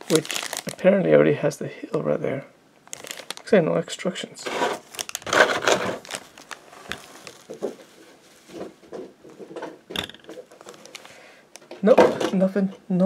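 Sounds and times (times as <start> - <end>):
plastic bag crinkling: 0.0 - 0.9, 2.8 - 3.6, 4.6 - 8.7, 10.4 - 11.2.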